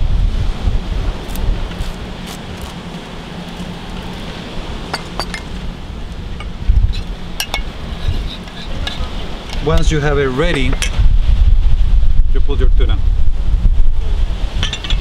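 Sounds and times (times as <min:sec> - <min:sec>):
wind on microphone: 0:00.0 - 0:15.0
utensils clinking ceramic bowls: 0:04.9 - 0:05.6, 0:06.4 - 0:09.7.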